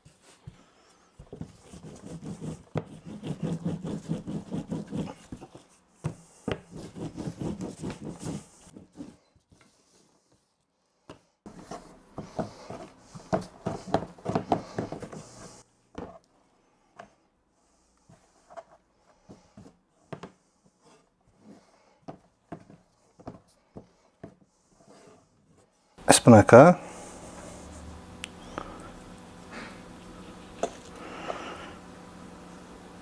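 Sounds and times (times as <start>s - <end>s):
rolling pin rolling dough: 0.0s - 10.5s, 11.1s - 16.3s, 18.0s - 25.7s.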